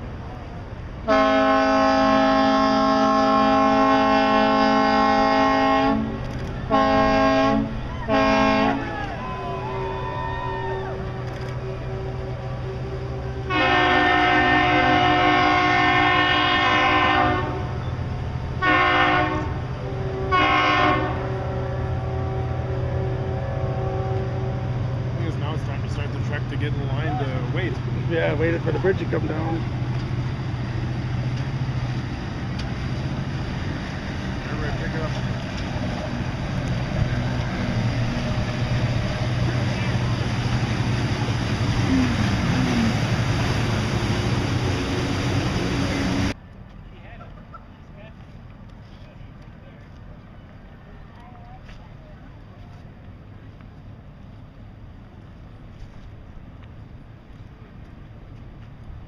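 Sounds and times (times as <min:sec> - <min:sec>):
rushing water: 0:00.0 - 0:46.4
air horn blasts: 0:01.1 - 0:08.9, 0:10.8 - 0:17.8, 0:18.6 - 0:24.7.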